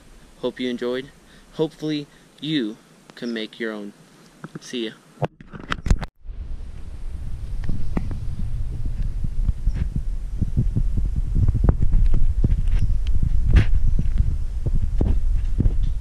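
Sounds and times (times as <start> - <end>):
wind buffeting microphone: 5.8 - 16.0.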